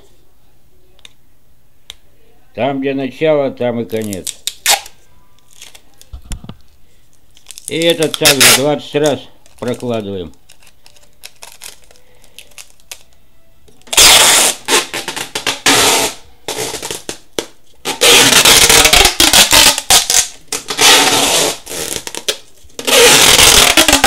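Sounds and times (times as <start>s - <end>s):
adhesive tape ripping off roll: 3.9s - 6.1s, 7.4s - 13.1s, 13.8s - 24.0s.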